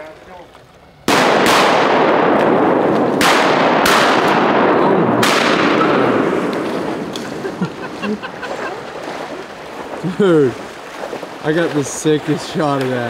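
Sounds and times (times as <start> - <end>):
shotgun shots: 1.0 - 7.5.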